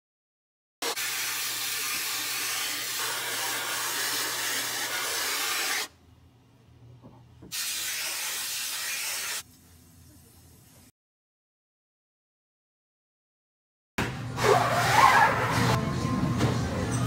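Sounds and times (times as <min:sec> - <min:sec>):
hose nozzle spraying water: 0:00.8 - 0:05.9, 0:07.5 - 0:09.5.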